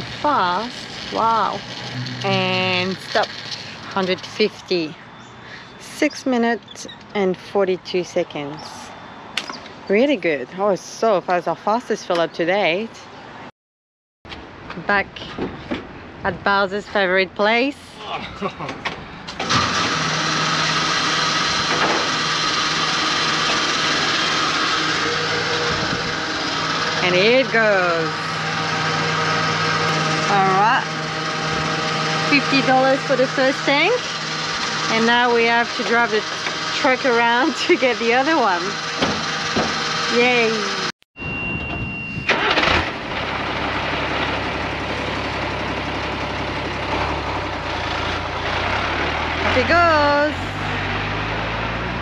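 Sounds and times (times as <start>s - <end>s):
steady high tone: 0.0s - 5.2s, 22.7s - 42.4s
diesel engine starting and idling: 0.0s - 6.7s, 19.2s - 41.0s, 42.0s - 52.0s
pump motor humming: 19.4s - 40.9s.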